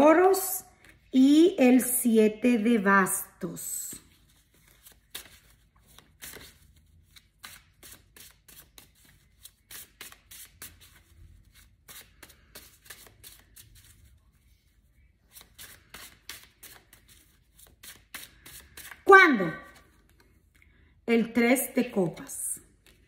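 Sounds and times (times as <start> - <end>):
cards being shuffled by hand: 3.9 - 19.1, 19.7 - 20.6, 22.7 - 23.0.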